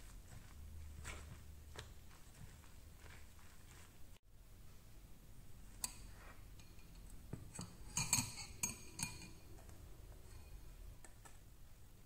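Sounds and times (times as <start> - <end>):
kitchenware clinking: 6.6 - 9.6.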